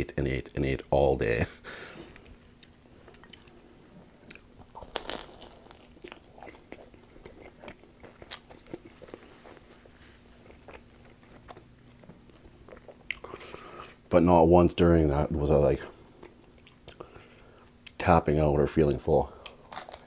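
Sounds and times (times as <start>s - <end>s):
person chewing pizza: 1.9s - 14.0s, 15.9s - 18.0s, 19.3s - 20.0s.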